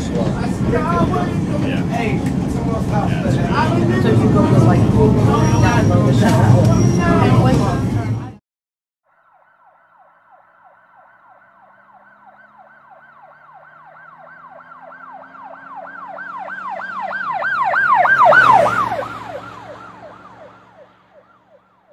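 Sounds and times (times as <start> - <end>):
vehicle engine rumble: 0.0 - 8.4, 9.9 - 21.9
emergency siren yelping: 9.1 - 21.9.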